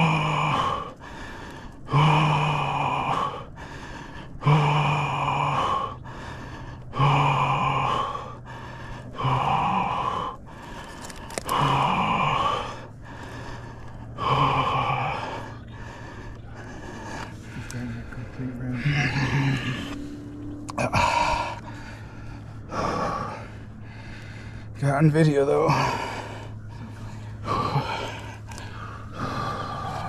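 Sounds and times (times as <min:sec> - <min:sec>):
man gasping and groaning: 0:00.0 - 0:30.0.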